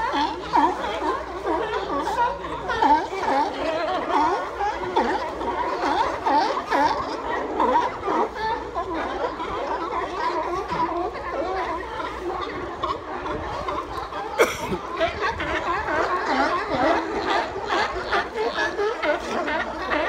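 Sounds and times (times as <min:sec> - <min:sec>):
sea lions barking: 0:00.0 - 0:20.0.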